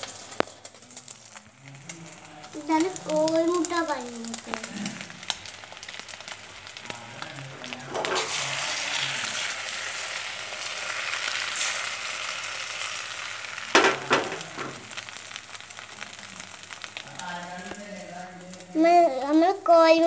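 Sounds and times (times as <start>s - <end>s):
egg sizzling in a pan: 0.0s - 20.0s.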